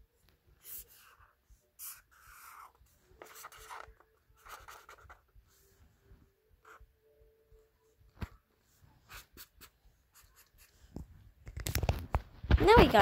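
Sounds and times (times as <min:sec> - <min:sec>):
marker drawing on paper: 0:00.6 - 0:05.8, 0:06.6 - 0:06.9, 0:08.6 - 0:11.1.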